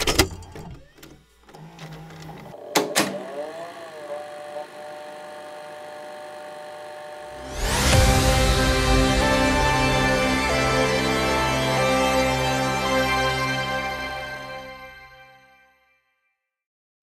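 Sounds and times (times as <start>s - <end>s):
video recorder mechanical whirring: 0.0s - 7.4s
music: 7.4s - 16.7s.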